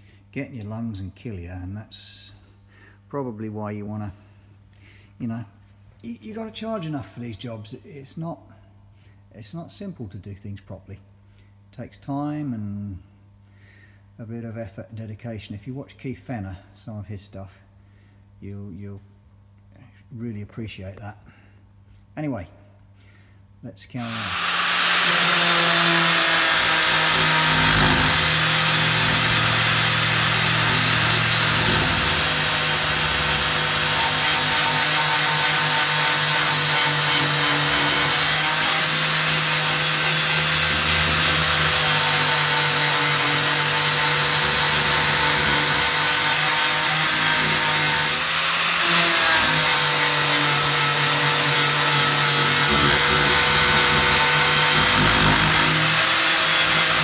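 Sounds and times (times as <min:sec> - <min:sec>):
angle grinder grinding metal: 0:24.0 - 0:57.0.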